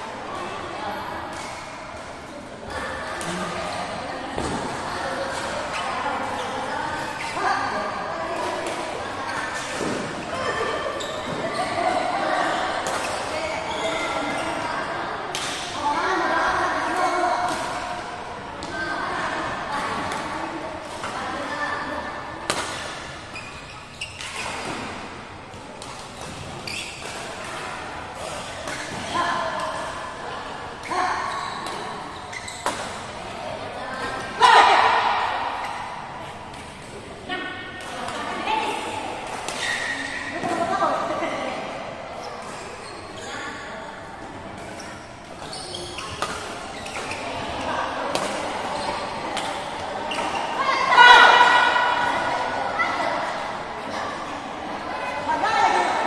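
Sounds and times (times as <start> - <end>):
murmur of voices: 0.0 - 56.0
shoes squeaking on court: 9.3 - 14.8, 22.8 - 25.0, 25.8 - 29.8, 30.8 - 33.1, 39.4 - 40.6, 42.2 - 43.7, 44.5 - 50.6
rackets hitting shuttlecock: 48.1 - 50.4.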